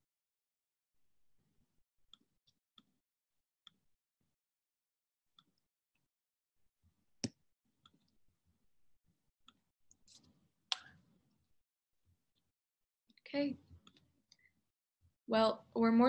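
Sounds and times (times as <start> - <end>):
faint irregular clicks: 13.1 - 14.5.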